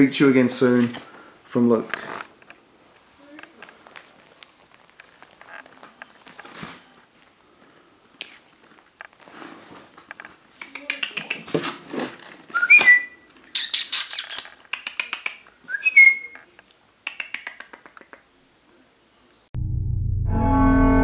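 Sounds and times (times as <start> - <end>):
plastic tape crackling: 1.8 - 7.3
cat chirping: 13.5 - 15.5.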